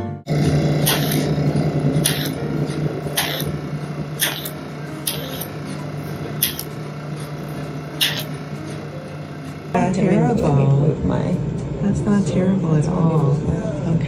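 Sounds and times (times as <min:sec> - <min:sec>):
machine humming: 0:00.3 - 0:12.3
suction wand hissing: 0:00.8 - 0:01.4, 0:02.0 - 0:02.4, 0:03.1 - 0:03.6, 0:04.2 - 0:05.6, 0:06.4 - 0:06.7, 0:08.0 - 0:08.4.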